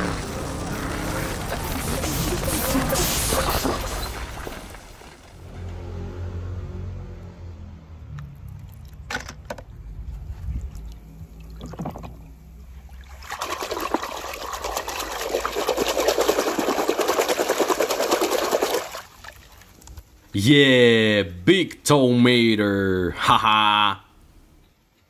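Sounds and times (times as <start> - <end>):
water splashing in plastic tub: 10.6 - 19.8.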